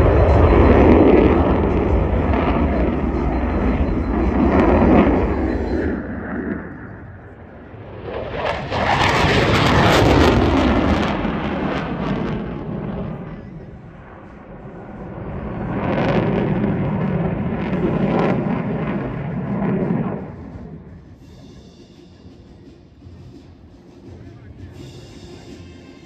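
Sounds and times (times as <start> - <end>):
fighter jet passing low: 0.0 - 22.7.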